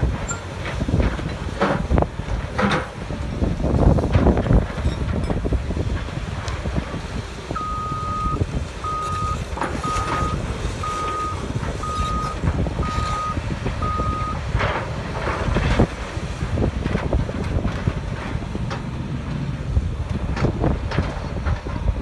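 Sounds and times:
low machinery rumble: 0:00.0 - 0:22.0
backup alarm beeping: 0:07.6 - 0:14.4.

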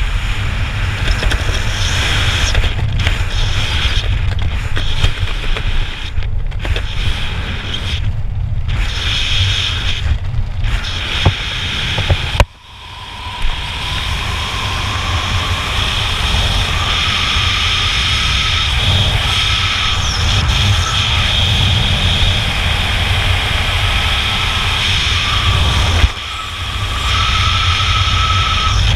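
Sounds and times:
wind buffeting microphone: 0:00.0 - 0:28.9
faint thin whine rising: 0:10.7 - 0:28.9.

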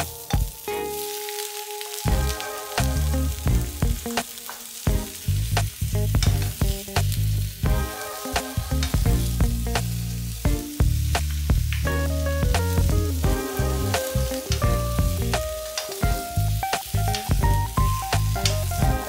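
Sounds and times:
leaves sizzling in a wok: 0:00.0 - 0:19.0
spatulas clicking on a pan: 0:15.7 - 0:16.1.

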